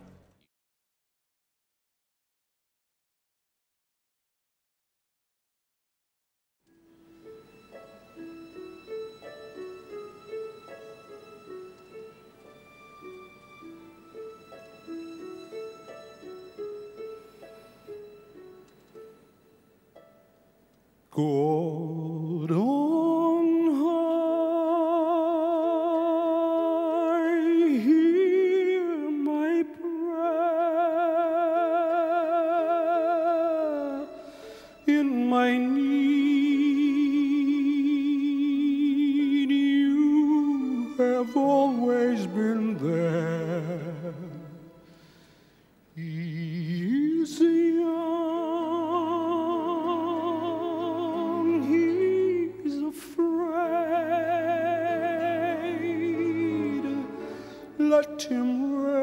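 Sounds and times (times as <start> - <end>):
wordless singing with vibrato: 21.1 - 59.0.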